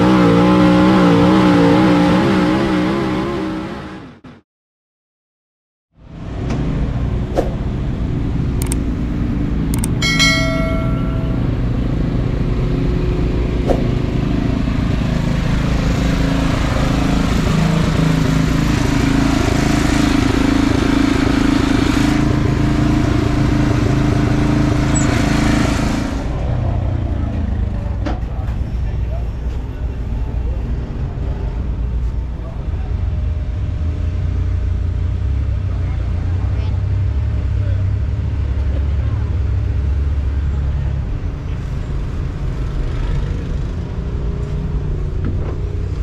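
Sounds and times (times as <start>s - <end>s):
engines rumbling: 0.0s - 4.4s, 5.9s - 46.0s
sharp clicks: 8.6s - 8.9s, 9.7s - 10.0s
short ringing tone: 10.0s - 11.8s.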